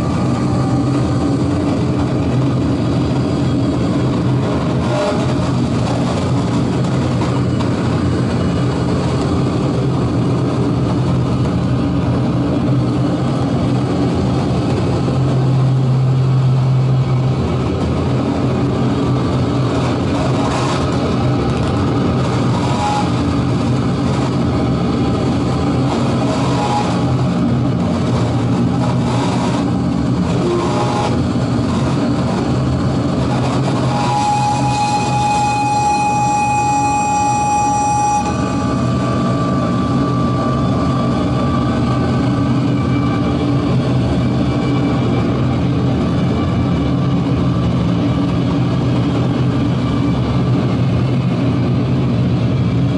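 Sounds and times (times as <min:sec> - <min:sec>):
synthesizer drone: 0:00.0 - 0:47.8.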